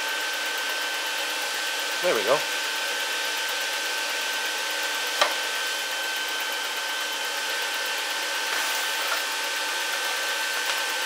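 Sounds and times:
fan whirring with high whine: 0:00.0 - 0:11.0.

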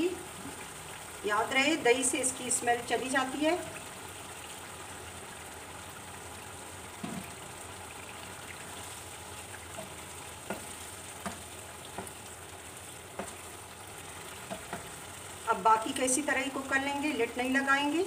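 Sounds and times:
liver sizzling in a pan: 0:00.0 - 0:18.0.

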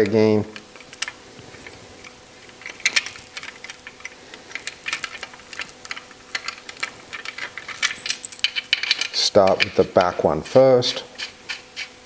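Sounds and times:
metal chain rattling: 0:02.6 - 0:09.8.

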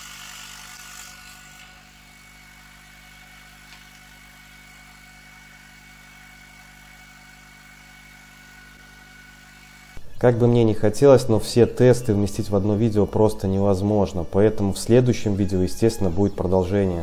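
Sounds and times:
laser engraver fans humming: 0:00.0 - 0:10.1.

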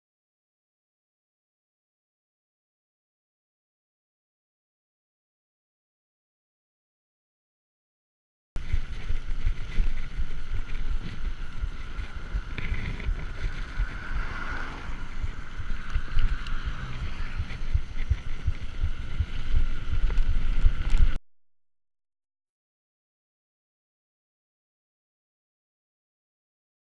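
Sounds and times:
bike tyres rumbling on tarmac: 0:08.6 - 0:21.2
wind buffeting microphone: 0:08.6 - 0:21.2.

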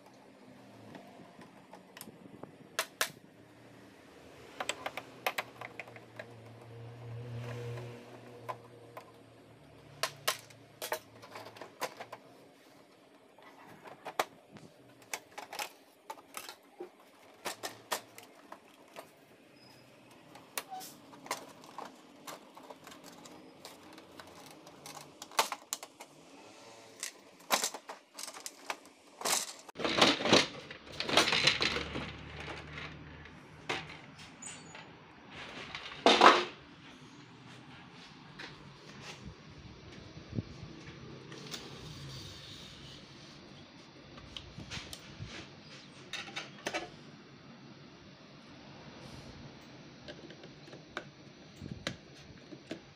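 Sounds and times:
plastic clattering and scraping: 0:04.6 - 0:09.2, 0:10.0 - 0:36.6.

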